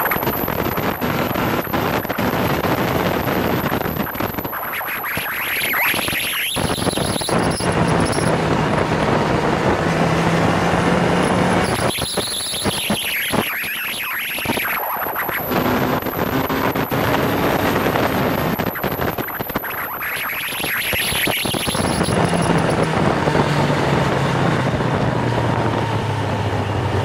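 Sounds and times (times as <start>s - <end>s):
wind rushing over microphone: 0.0s - 12.3s, 14.7s - 20.0s, 21.0s - 27.0s
motorcycle engine accelerating: 6.6s - 13.9s, 15.4s - 19.1s, 21.7s - 27.0s.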